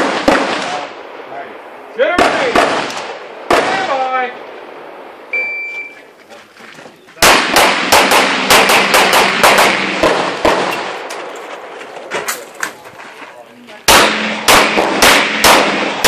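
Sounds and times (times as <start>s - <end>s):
shot timer beep: 5.3s - 6.0s
handgun shots: 7.2s - 10.8s, 13.9s - 16.0s.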